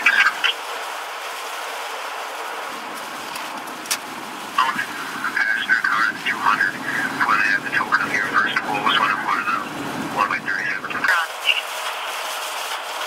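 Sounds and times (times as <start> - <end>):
garbled radio voice chatter: 0.0 - 0.6, 4.5 - 12.1
static hiss: 0.0 - 13.0.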